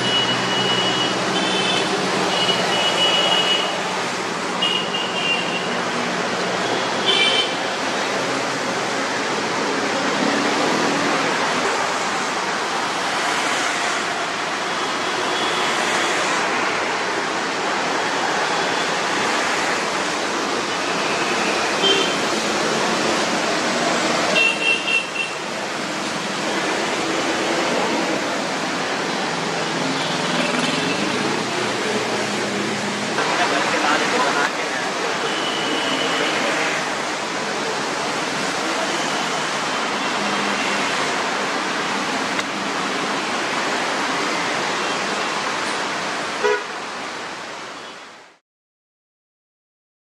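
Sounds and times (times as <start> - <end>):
vehicle engines: 7.6 - 46.2.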